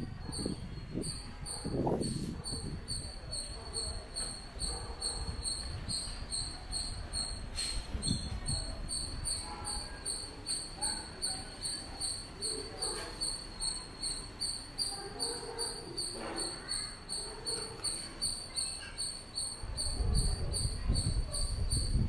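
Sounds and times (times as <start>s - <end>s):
cricket chirping: 0.0s - 22.0s.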